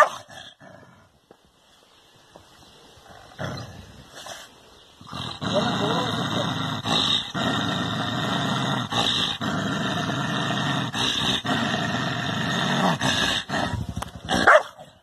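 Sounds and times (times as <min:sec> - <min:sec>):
dog growling low: 0:03.1 - 0:04.3, 0:05.0 - 0:15.0
dog yelping: 0:14.4 - 0:14.8.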